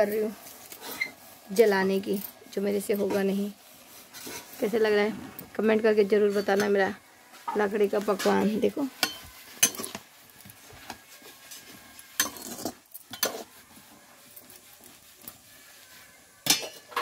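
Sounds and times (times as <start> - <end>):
metal spatula scraping a pot: 0.6 - 5.1, 5.9 - 17.0
spatula clinking against pot: 9.0 - 10.0, 12.2 - 13.5.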